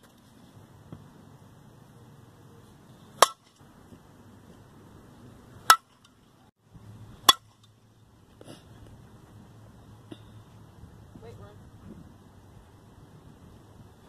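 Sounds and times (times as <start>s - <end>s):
bat striking ball ping: 3.2s - 3.6s, 5.6s - 6.2s, 7.2s - 7.7s.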